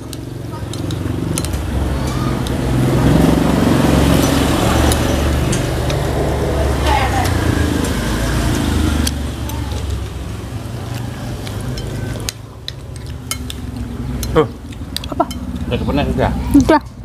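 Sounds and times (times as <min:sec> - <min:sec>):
spoon scraping plates: 0:10.9 - 0:15.6.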